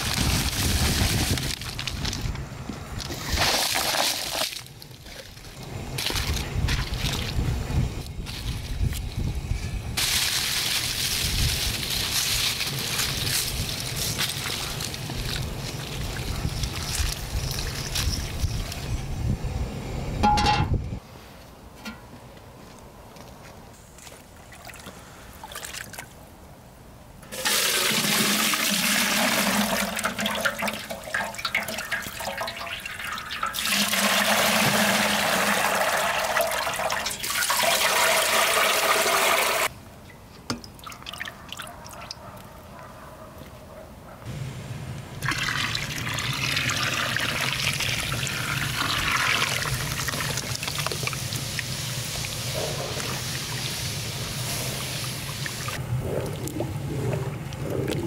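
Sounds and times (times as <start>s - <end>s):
running water splashing: 27.4s - 39.7s, 45.2s - 55.8s.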